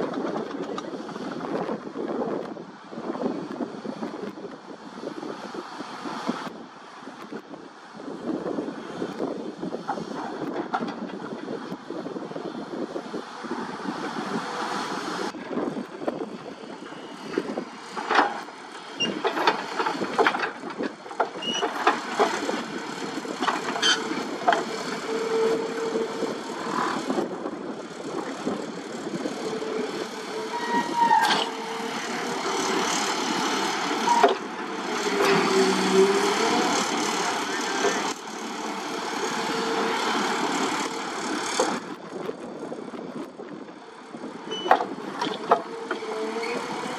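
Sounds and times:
excavator hydraulics running: 0:08.4 - 0:43.2, 0:43.8 - 0:46.9
steel piles clanking: 0:17.9 - 0:25.8.

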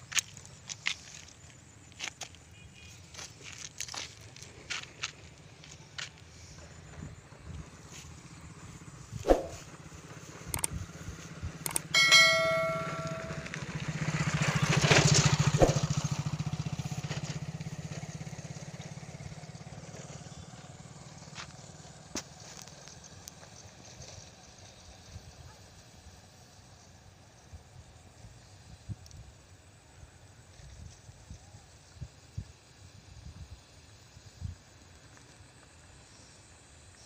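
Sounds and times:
motorcycle engine passing by: 0:07.1 - 0:26.1
metallic bell-like ding: 0:11.9 - 0:13.6.

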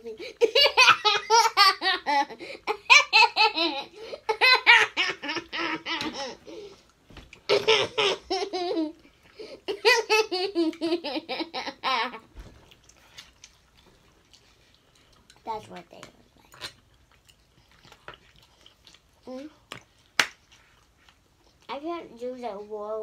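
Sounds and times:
girl laughing hard: 0:00.0 - 0:06.6, 0:07.5 - 0:09.0.

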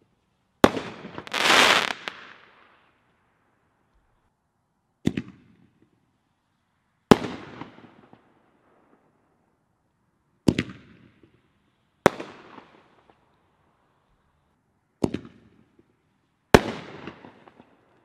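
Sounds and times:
firework bangs: 0:00.6 - 0:02.7.

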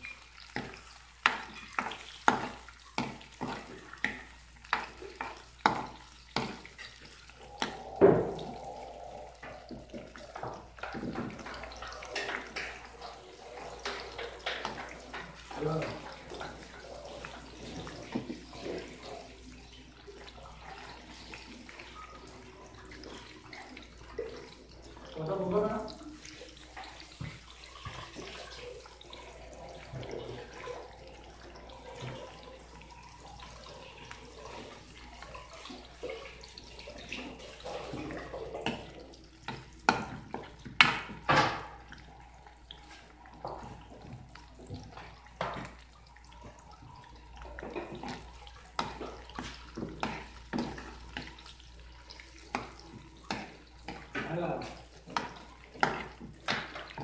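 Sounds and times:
onions bubbling in oil: 0:00.0 - 0:57.0.

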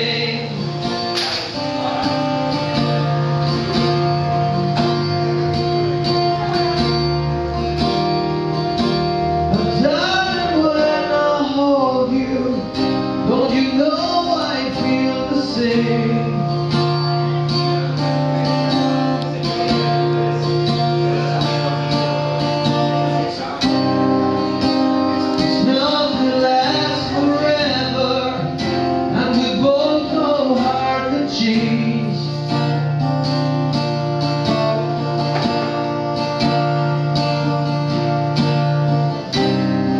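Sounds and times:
man singing: 0:00.0 - 0:05.1, 0:09.3 - 0:33.4
acoustic guitar chords: 0:00.0 - 0:39.9.

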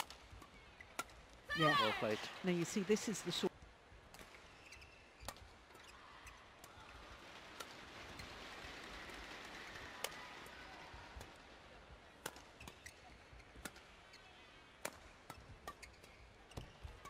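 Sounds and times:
rackets hitting shuttlecock: 0:12.2 - 0:13.0, 0:14.8 - 0:16.8.

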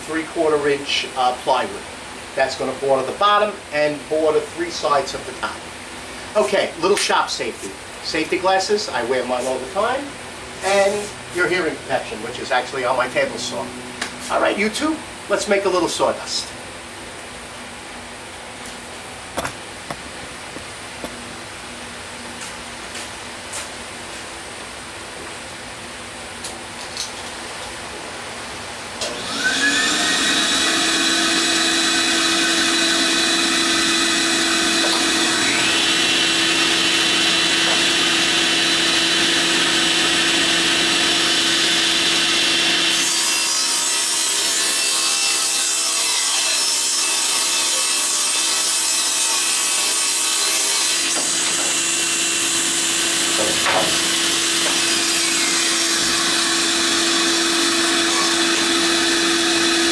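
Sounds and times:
saw cutting plywood: 0:29.0 - 0:59.9
table saw humming and whining: 0:29.0 - 0:59.9.

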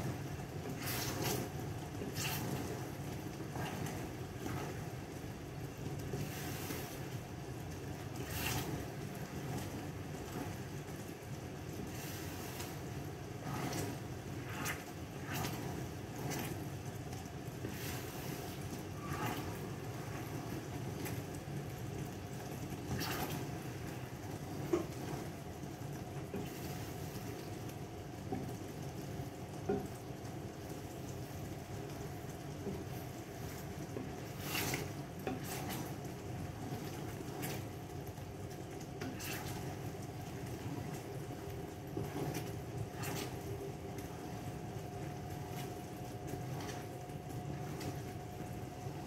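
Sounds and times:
pan simmering and bubbling: 0:00.0 - 0:49.0
faint clicks and taps: 0:29.5 - 0:34.2.

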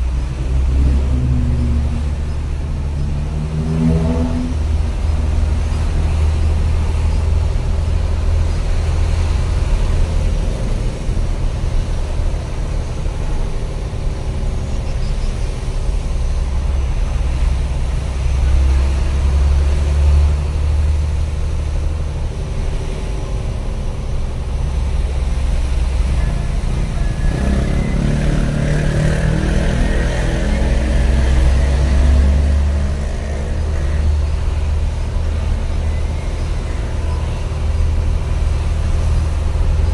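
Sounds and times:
truck engine rumble: 0:00.0 - 0:39.9.

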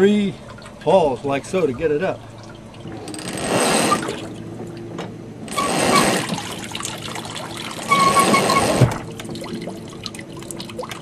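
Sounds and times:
winch squeak: 0:03.1 - 0:04.2, 0:05.5 - 0:06.4, 0:07.8 - 0:08.9.

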